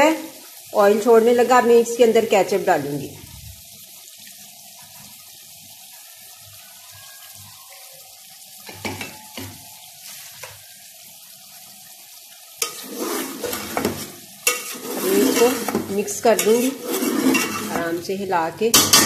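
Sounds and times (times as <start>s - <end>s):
curry sizzling in pot: 0.0s - 19.0s
spoon scraping pot: 12.6s - 18.0s.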